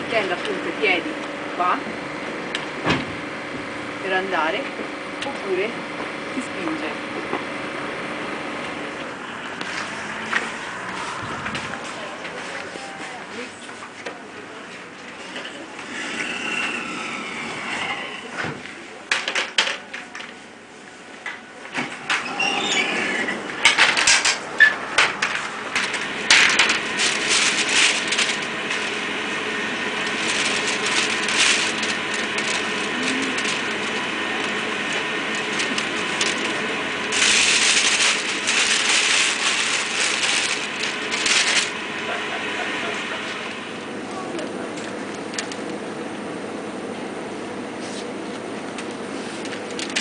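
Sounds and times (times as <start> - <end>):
supermarket background noise: 0.0 - 50.0
paper bag rustling: 25.1 - 43.5, 48.8 - 50.0.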